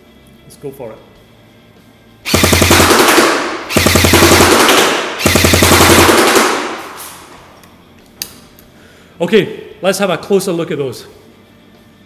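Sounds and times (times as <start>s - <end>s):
airsoft gun full-auto bursts: 2.3s - 7.0s.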